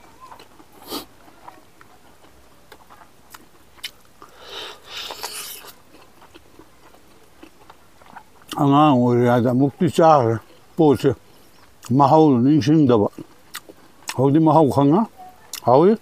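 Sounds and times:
man chewing with mouth clicks: 0.2 - 8.7, 13.1 - 14.2.

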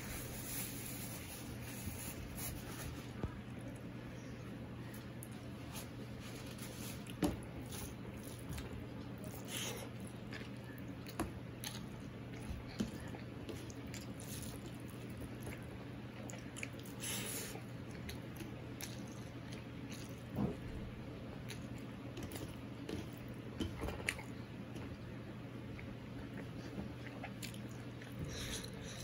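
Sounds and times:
steady low hum: 0.0 - 29.0
chewing: 7.0 - 20.3, 25.7 - 29.0.

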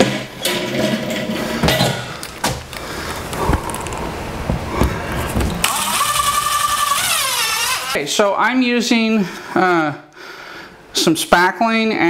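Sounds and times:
step stool knocks: 4.4 - 5.6
cordless drill driving screw: 5.6 - 8.0.

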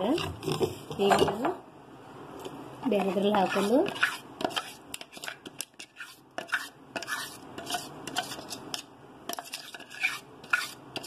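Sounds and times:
spoon scraping metal jar: 3.0 - 11.0.

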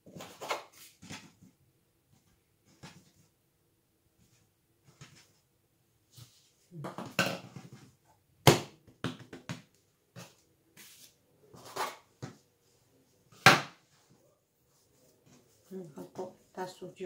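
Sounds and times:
knocks and thumps on countertop: 6.8 - 7.8, 8.5 - 9.7.

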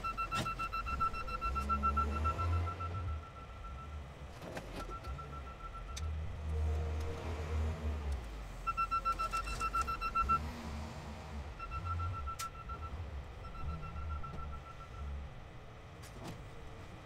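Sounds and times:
backup alarm beeping: 0.0 - 4.2, 4.8 - 6.2, 8.6 - 10.5, 11.6 - 15.2
diesel engine under load: 0.0 - 17.0.

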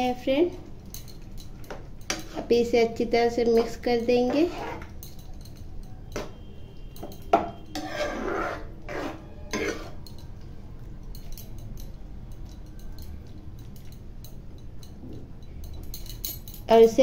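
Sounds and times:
ladle scraping metal pan: 4.3 - 4.9, 7.7 - 10.0.

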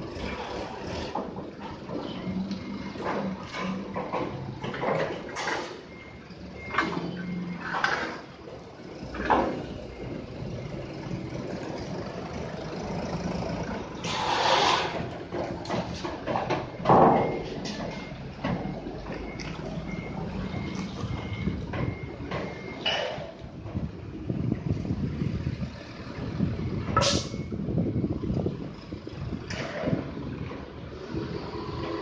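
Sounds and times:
forklift engine running: 0.0 - 32.0
steel forks scraping steel plate: 14.0 - 15.0.

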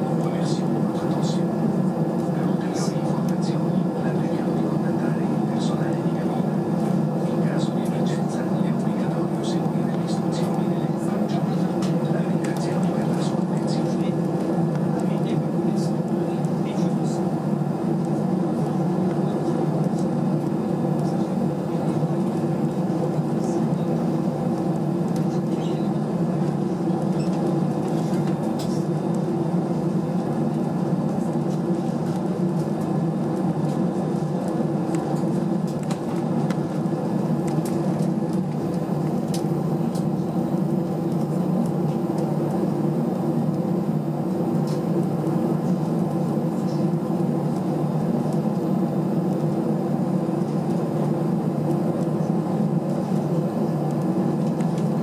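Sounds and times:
aircraft cabin hum: 0.0 - 55.0
jet engines at taxi power: 0.0 - 55.0.

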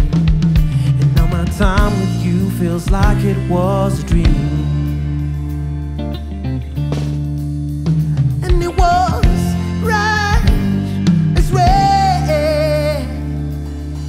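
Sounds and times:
person singing wordless notes: 0.7 - 5.0, 8.1 - 13.7.

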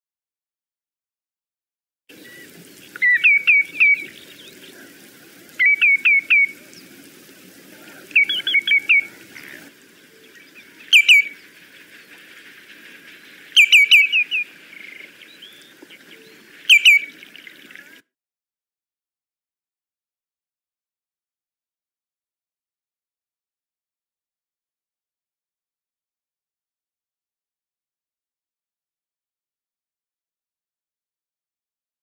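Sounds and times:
bird calling downslurred notes: 2.1 - 18.0.

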